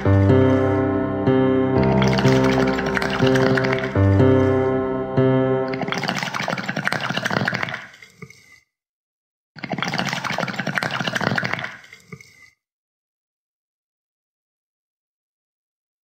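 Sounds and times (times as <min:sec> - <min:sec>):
music: 0:00.0 - 0:06.3
rushing water: 0:01.8 - 0:04.1, 0:05.7 - 0:07.8.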